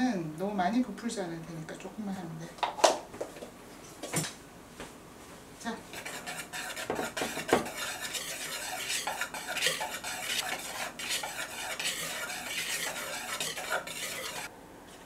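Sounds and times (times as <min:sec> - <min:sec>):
whisk scraping plastic bowl: 0:05.9 - 0:14.5
whisk knocks on bowl: 0:06.8 - 0:07.8.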